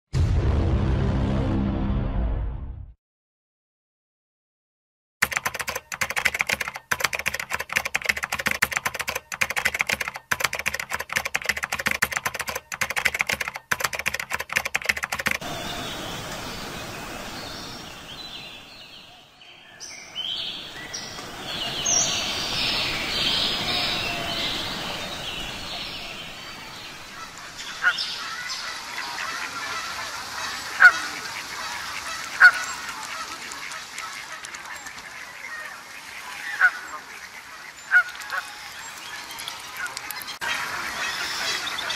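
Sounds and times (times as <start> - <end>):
rapid crackling clicks: 5.2 - 15.4, 31.6 - 35.3
steady outdoor hiss: 5.3 - 41.9
birds chirping: 5.4 - 41.9.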